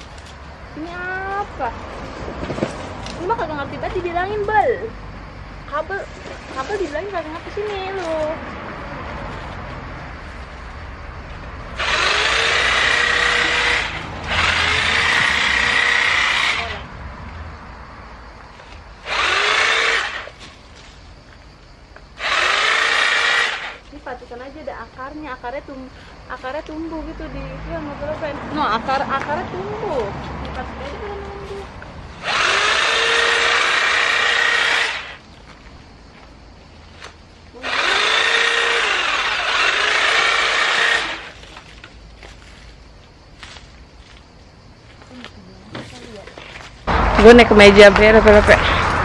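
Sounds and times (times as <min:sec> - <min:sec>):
electric saw motor: 0:11.8 - 0:16.9, 0:19.0 - 0:20.4, 0:22.2 - 0:23.8, 0:32.2 - 0:35.2, 0:37.6 - 0:41.4.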